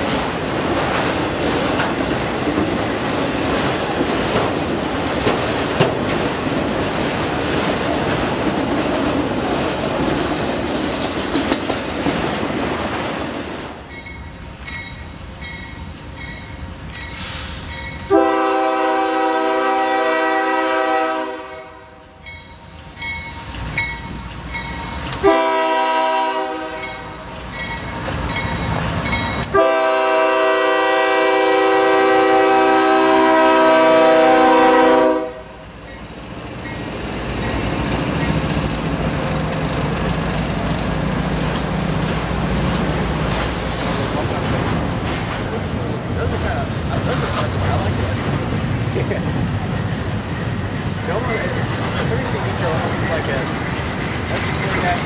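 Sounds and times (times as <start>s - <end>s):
freight cars rumbling and clattering: 0.0s - 13.9s, 35.7s - 55.0s
locomotive air horn: 18.1s - 22.0s, 25.2s - 27.1s, 29.5s - 35.6s.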